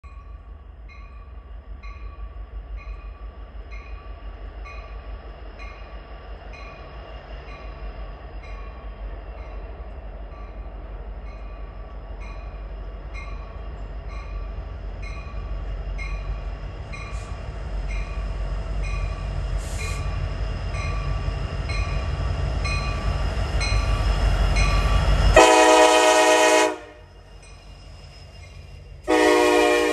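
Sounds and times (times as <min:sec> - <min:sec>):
diesel locomotive rumble: 0:00.0 - 0:29.9
train air horn blast: 0:25.3 - 0:27.1, 0:29.1 - 0:29.9.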